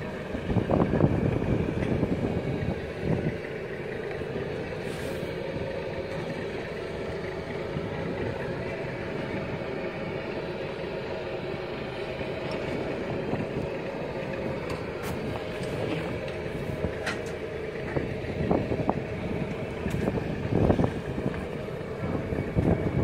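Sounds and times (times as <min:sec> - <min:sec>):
wind on microphone: 0:00.0 - 0:03.9, 0:12.4 - 0:23.0
motorboat engine running: 0:00.0 - 0:23.0.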